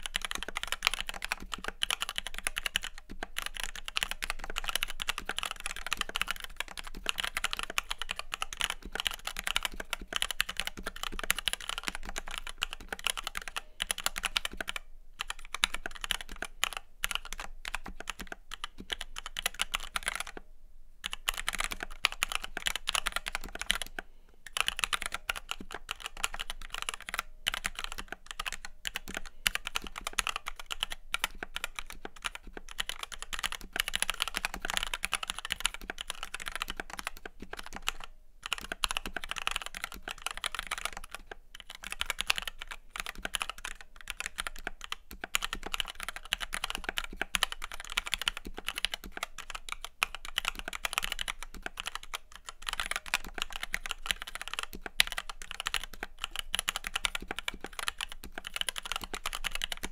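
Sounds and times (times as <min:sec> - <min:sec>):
mechanical keyboard typing: 0:00.0 - 0:20.4, 0:21.0 - 0:59.9.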